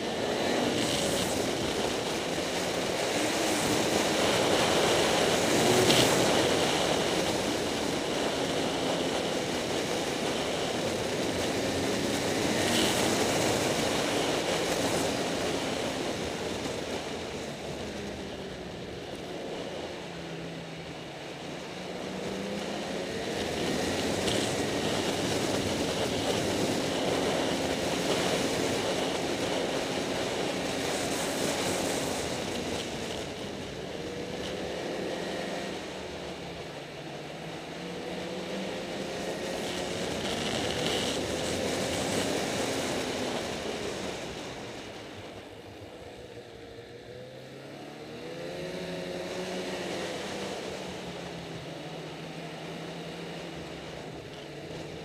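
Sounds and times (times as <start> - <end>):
snowmobile engine revving: 0.0 - 20.3, 21.0 - 37.0
wind and track noise: 0.0 - 55.0.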